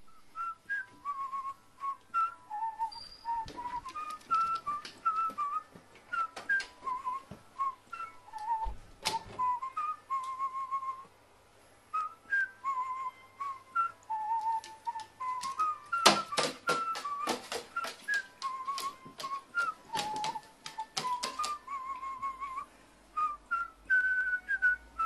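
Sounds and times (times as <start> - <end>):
person whistling a tune: 0.0 - 11.1, 11.9 - 25.0
scattered clicks: 14.0 - 21.6.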